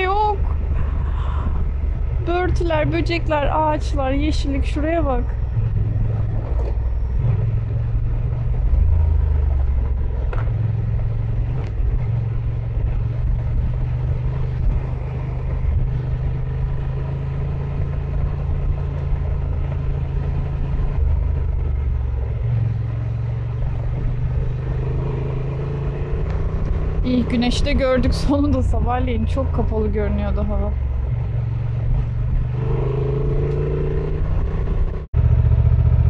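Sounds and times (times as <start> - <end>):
motorcycle engine running: 0.0 - 36.0.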